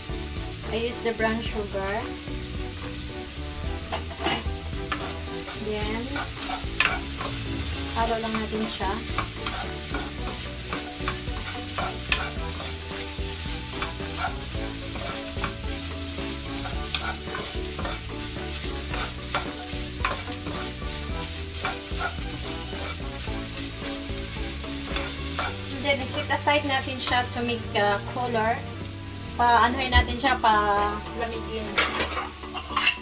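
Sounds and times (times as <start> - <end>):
food sizzling in butter: 0.0 - 33.0
spatula scraping frying pan: 3.7 - 26.4, 31.6 - 33.0.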